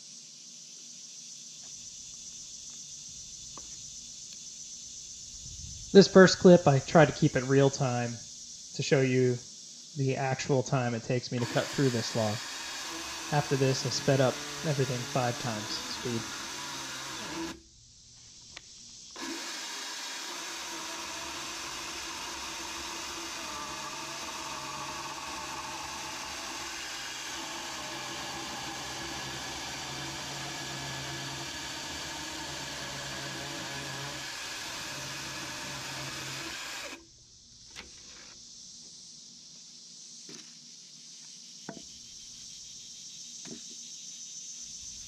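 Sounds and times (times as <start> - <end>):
chainsaw cutting log: 11.4 - 17.6, 19.1 - 37.0.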